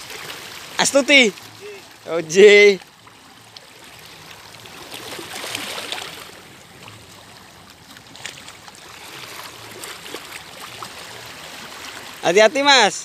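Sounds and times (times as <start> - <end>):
small waves lapping on rocks: 0.0 - 13.0.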